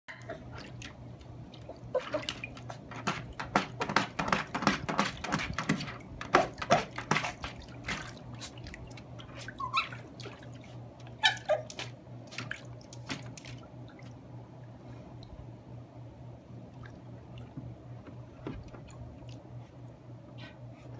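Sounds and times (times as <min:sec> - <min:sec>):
dog splashing in shallow water: 0:00.6 - 0:14.2.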